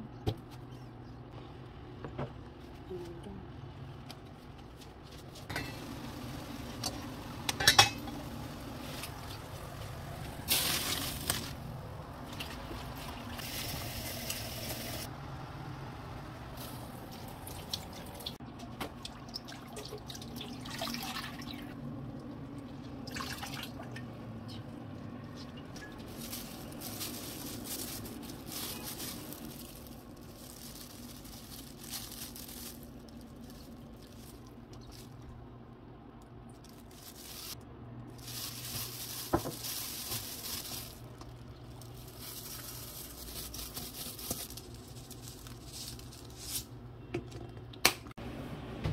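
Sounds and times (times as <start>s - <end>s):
water dripping and trickling: 17.0s - 26.3s.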